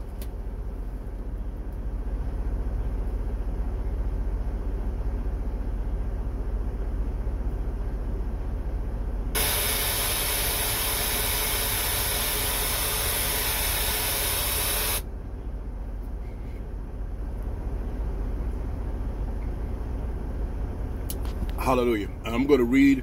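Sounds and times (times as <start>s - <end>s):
truck engine rumble: 0.0s - 23.0s
loud steady hiss: 9.4s - 15.0s.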